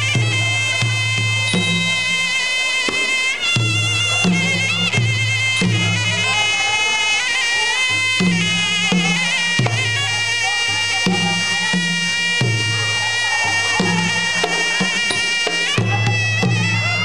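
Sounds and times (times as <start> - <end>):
reedy oboe melody: 0.0 - 17.0.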